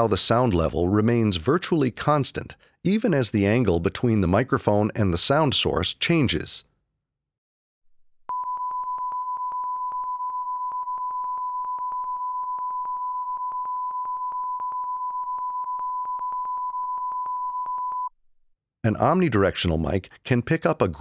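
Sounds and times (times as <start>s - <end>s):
steady test tone: 8.3s - 18.1s.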